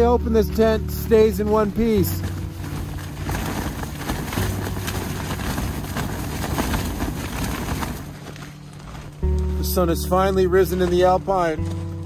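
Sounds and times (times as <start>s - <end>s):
tent walls flapping in wind: 0.0s - 12.0s
wind rumbling on microphone: 1.1s - 9.4s.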